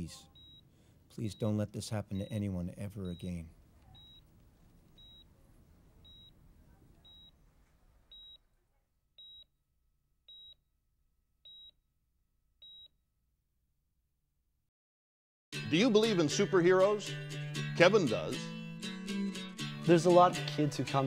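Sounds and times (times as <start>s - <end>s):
heart monitor beeping: 0.3s - 4.3s, 4.9s - 5.4s, 6.0s - 6.4s, 7.0s - 7.4s, 8.1s - 8.4s, 9.2s - 9.5s, 10.3s - 10.6s, 11.4s - 11.8s, 12.6s - 13.0s.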